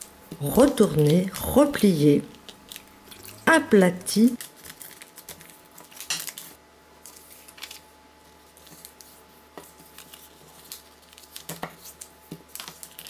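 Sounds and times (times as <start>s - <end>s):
paper crackling: 2.2s - 3.4s, 4.1s - 13.0s
paper rustling: 4.3s - 13.0s.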